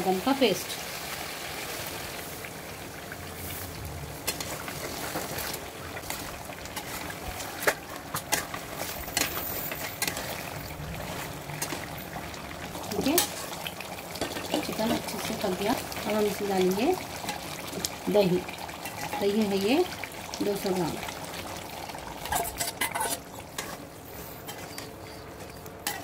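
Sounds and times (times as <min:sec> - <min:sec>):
sauce bubbling and sizzling: 0:00.0 - 0:26.0
metal spatula scraping pan: 0:04.3 - 0:11.9, 0:22.2 - 0:26.0.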